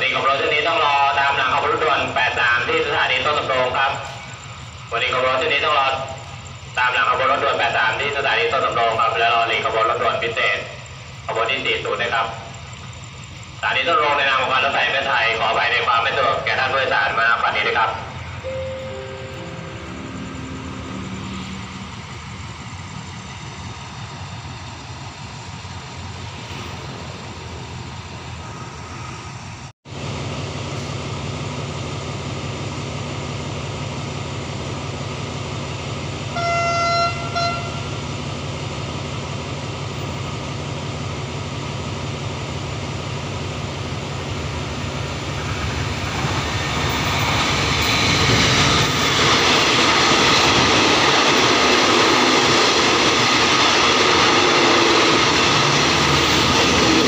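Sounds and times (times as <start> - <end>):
diesel locomotive engine drone: 0.0 - 57.0
train horn blast: 18.5 - 21.9, 36.3 - 37.9.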